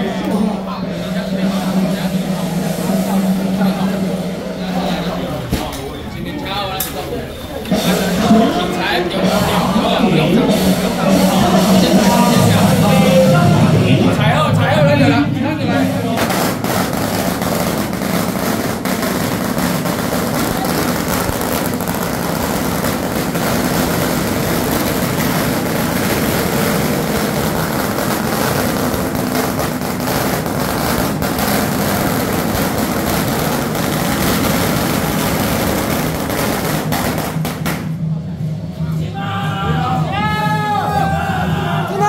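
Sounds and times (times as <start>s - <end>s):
firecrackers crackling: 0.0s - 14.4s, 15.5s - 38.6s.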